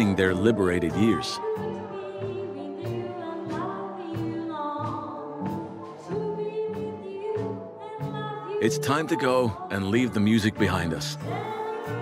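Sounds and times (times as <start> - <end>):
person singing: 0.0 - 12.0.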